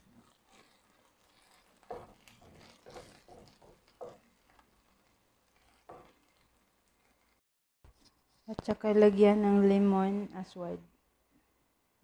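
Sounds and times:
wooden spoon scraping frying pan: 0:00.0 - 0:08.8.

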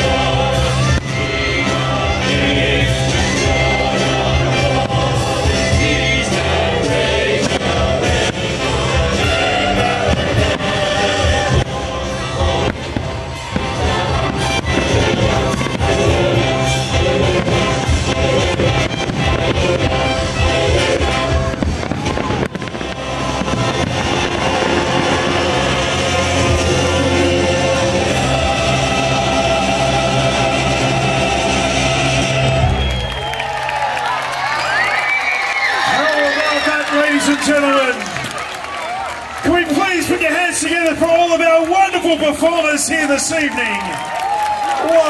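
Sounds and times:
choir singing carols: 0:00.0 - 0:32.9
instrumental accompaniment: 0:00.0 - 0:33.0
loud music: 0:00.0 - 0:35.2
fireworks bursting and crackling: 0:00.0 - 0:45.0
faint firework bangs: 0:20.7 - 0:26.8.

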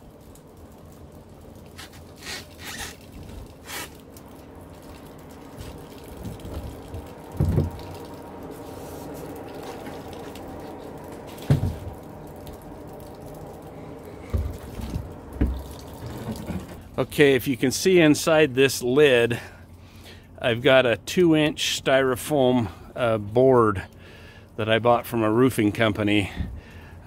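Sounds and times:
water running and trickling: 0:00.0 - 0:27.0.

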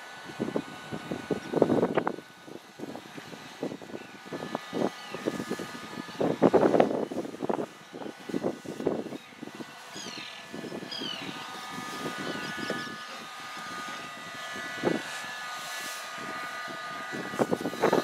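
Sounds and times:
distant engine drone: 0:00.0 - 0:18.0
bird-like chirps: 0:09.2 - 0:11.4.

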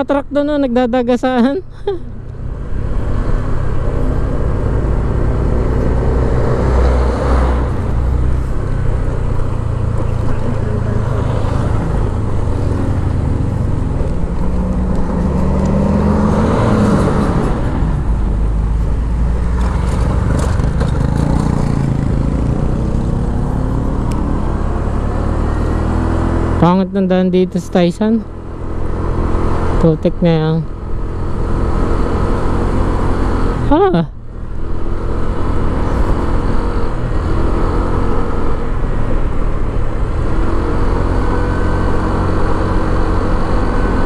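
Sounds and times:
wind and road noise: 0:00.0 - 0:44.0
motorcycle engine running: 0:17.5 - 0:25.5.

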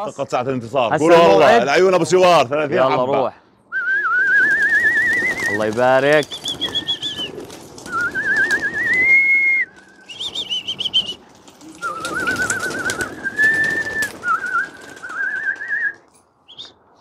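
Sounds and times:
person whistling warbling phrases: 0:11.8 - 0:16.7.

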